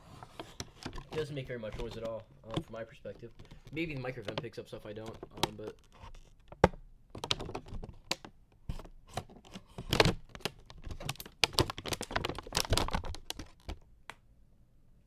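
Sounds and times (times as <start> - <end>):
plastic packaging crackling: 0.4 - 6.6, 9.2 - 13.8.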